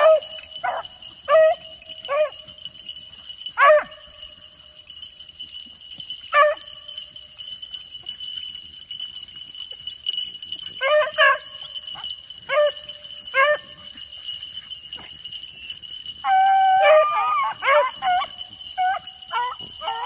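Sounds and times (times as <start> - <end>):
dog barking: 0.0 - 2.4, 3.6 - 4.0, 10.8 - 11.5, 12.5 - 12.8, 13.4 - 13.8.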